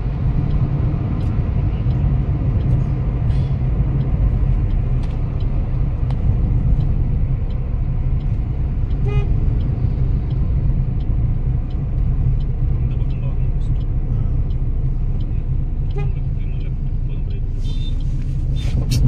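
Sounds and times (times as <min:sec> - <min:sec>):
car road and engine rumble: 0:00.0 - 0:19.0
car horn toot: 0:09.0 - 0:09.4, 0:15.9 - 0:16.3.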